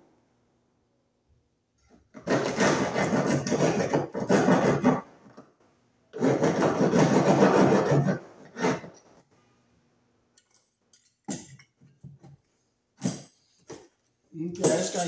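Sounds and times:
hand saw cutting wood: 2.1 - 5.1, 6.2 - 9.0.

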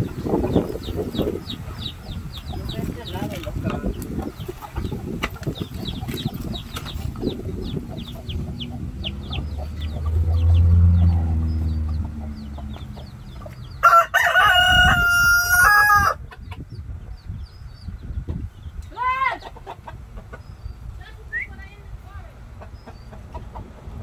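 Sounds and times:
hens clucking: 0.0 - 17.3, 18.2 - 24.0
chicks peeping: 0.0 - 24.0
low hum: 6.6 - 13.8
rooster crowing: 13.8 - 16.2.

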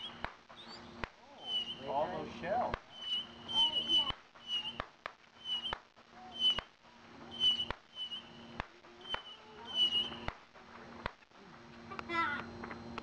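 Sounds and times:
animal chirping call: 0.0 - 1.9, 2.9 - 4.8, 6.3 - 6.7, 9.0 - 10.3
low steady hum: 0.0 - 13.0.

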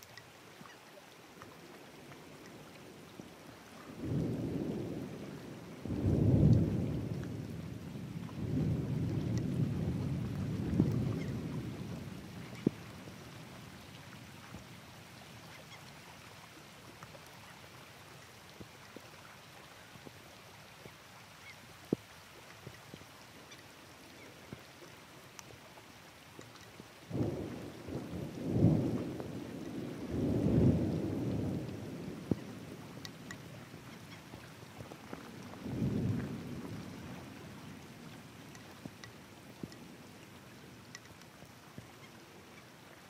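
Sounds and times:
raindrops ticking near microphone: 0.0 - 43.0
steady rain: 0.0 - 43.0
thunder rumbling: 4.0 - 12.7, 27.1 - 33.3, 34.8 - 38.2.

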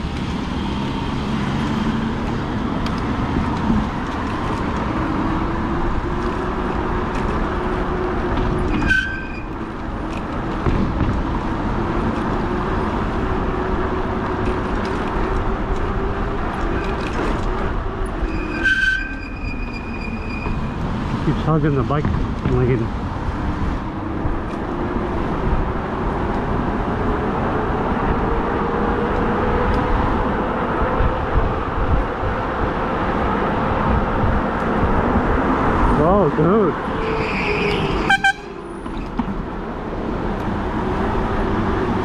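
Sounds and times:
road and wind noise: 0.0 - 42.0
short high-pitched squeals: 8.7 - 9.5, 18.2 - 20.8, 37.0 - 38.6.

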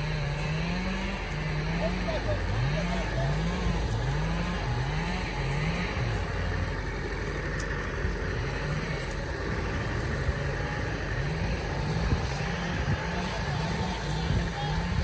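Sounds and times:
diesel truck engine running: 0.0 - 15.0.

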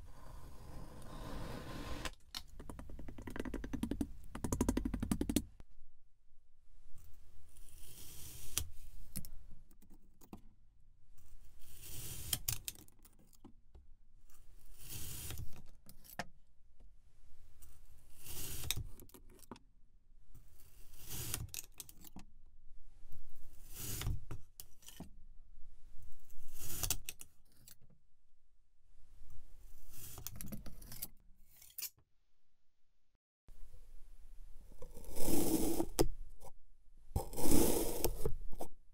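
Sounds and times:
knife cutting through sand: 34.9 - 36.0, 37.2 - 38.3.

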